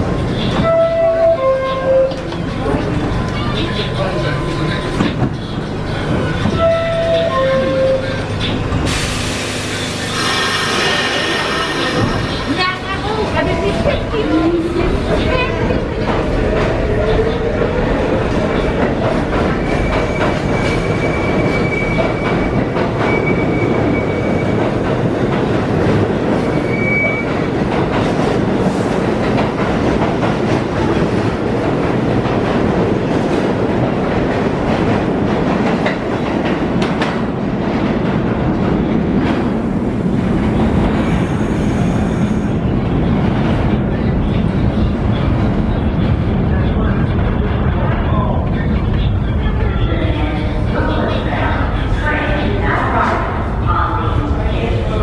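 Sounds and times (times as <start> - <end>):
train wheels rumbling on rail: 0.0 - 55.0
high wheel squeal: 10.0 - 12.5, 19.5 - 24.6, 26.4 - 27.5.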